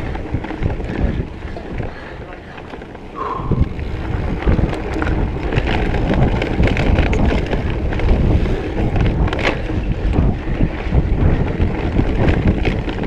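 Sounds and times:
bike clicks and rattles: 0:00.0 - 0:13.0
tyres rumbling on dirt: 0:00.0 - 0:13.0
wind buffeting microphone: 0:00.0 - 0:13.0.

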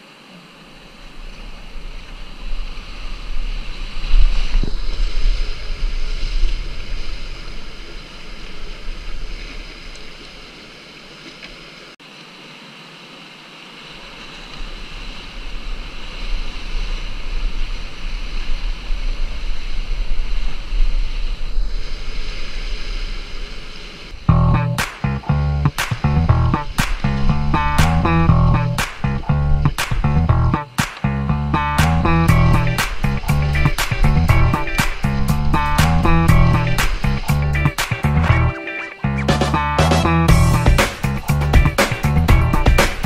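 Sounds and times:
wind buffeting microphone: 0:01.0 - 0:07.9
whitewater rapids rushing: 0:31.6 - 0:39.9.

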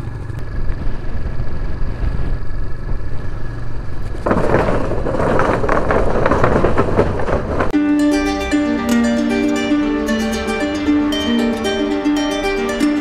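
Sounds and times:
motorcycle running: 0:00.0 - 0:05.0
loose wooden boards clattering: 0:04.1 - 0:07.7.

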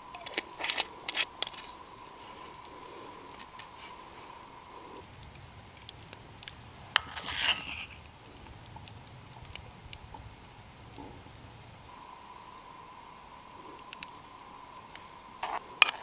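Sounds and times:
faint ticks: 0:00.0 - 0:16.0
wet squelching scrape: 0:07.0 - 0:08.0.

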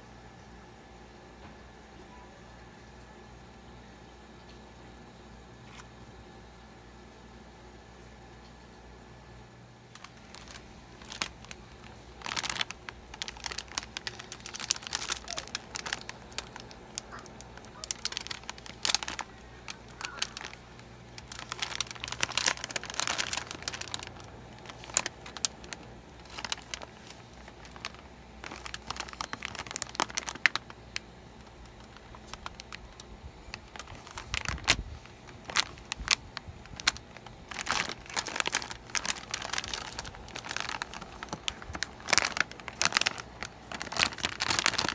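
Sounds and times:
plastic snack bag crinkling: 0:09.8 - 0:44.9.

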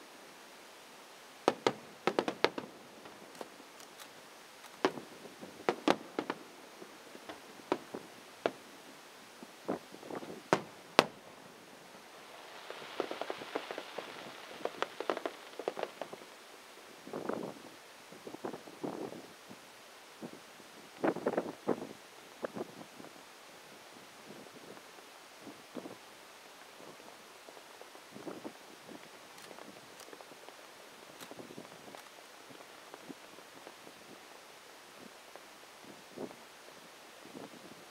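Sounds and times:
crackling firework pops: 0:01.4 - 0:08.6, 0:09.7 - 0:11.2, 0:12.4 - 0:16.3, 0:29.3 - 0:30.3, 0:31.2 - 0:32.2
firework shells bursting: 0:01.4 - 0:08.6, 0:10.1 - 0:11.3, 0:12.5 - 0:16.2.

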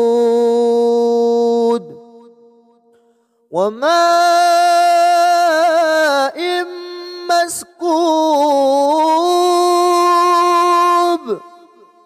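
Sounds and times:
man chanting recitation: 0:00.0 - 0:02.8, 0:03.5 - 0:12.0
quick breath: 0:02.9 - 0:03.5.

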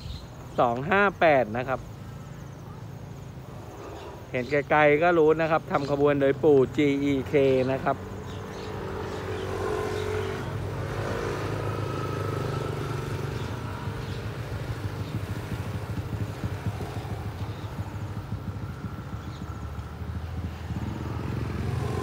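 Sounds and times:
motor engine running: 0:11.2 - 0:22.0.

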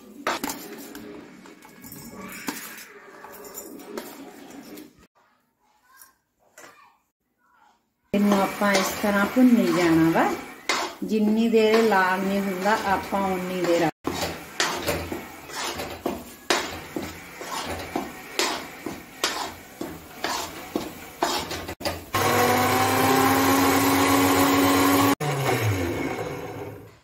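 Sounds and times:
metal spoon scraping a pan: 0:00.0 - 0:05.1, 0:08.2 - 0:22.1
electric mixer grinder whining: 0:08.2 - 0:27.0.

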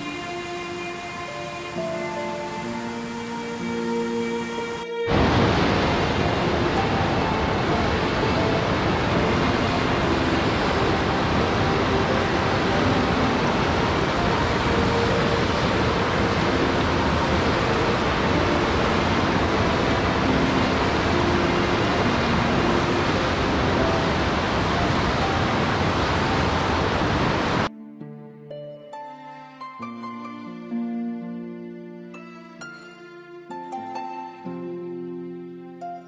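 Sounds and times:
rushing water: 0:00.0 - 0:27.7
soft music: 0:00.0 - 0:36.0.

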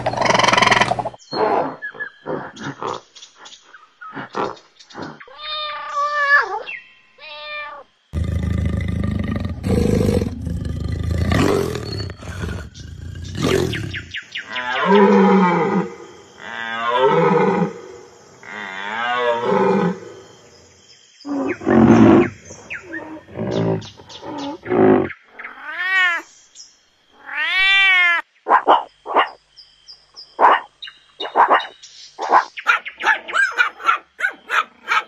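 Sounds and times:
rhinoceros calls and squeals: 0:00.0 - 0:03.1.

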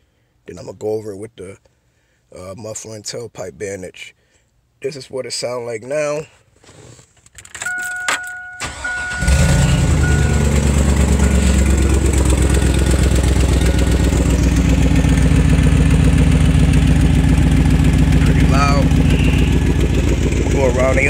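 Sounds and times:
dashboard chime beeping: 0:07.6 - 0:14.4
truck engine starting: 0:08.2 - 0:21.0
engine idling with exhaust leak: 0:08.6 - 0:21.0.

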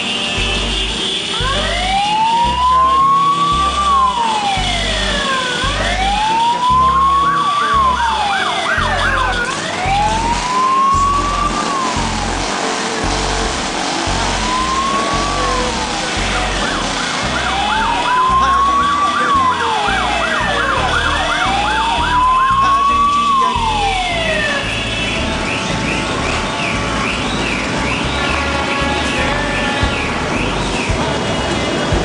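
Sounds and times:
siren yelping: 0:01.3 - 0:12.5, 0:14.3 - 0:24.8
siren wailing: 0:01.3 - 0:28.9.

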